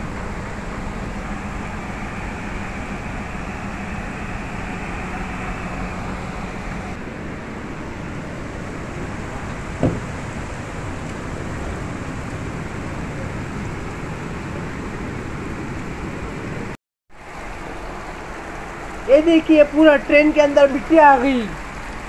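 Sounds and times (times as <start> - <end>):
short sharp knock: 9.8 - 10.1.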